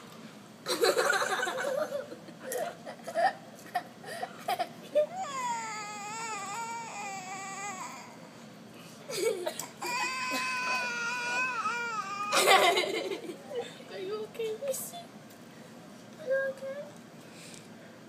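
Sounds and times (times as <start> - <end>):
toddler wailing: 5.0 - 8.3, 9.8 - 12.8.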